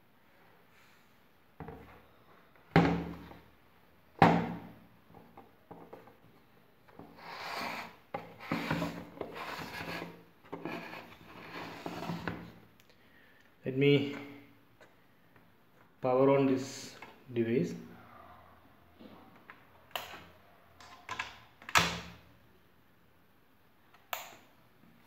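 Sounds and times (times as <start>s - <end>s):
plastic scraping on desk: 6.9s - 12.5s.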